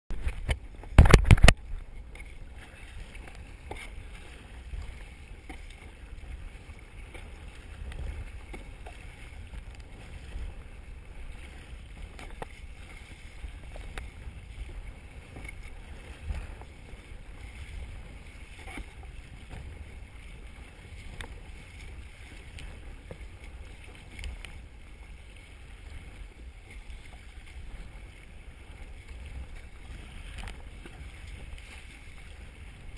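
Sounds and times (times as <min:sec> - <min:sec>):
water splashing against kayak: 0:00.1 - 0:32.9
wind rumbling on microphone: 0:00.1 - 0:32.9
faint ticks: 0:07.1 - 0:09.9, 0:13.6 - 0:16.8, 0:21.1 - 0:24.6, 0:30.2 - 0:31.8.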